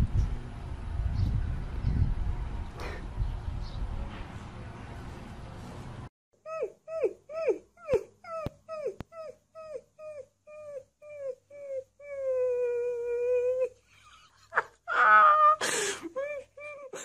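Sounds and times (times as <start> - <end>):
puppy yelping: 6.5 - 11.8.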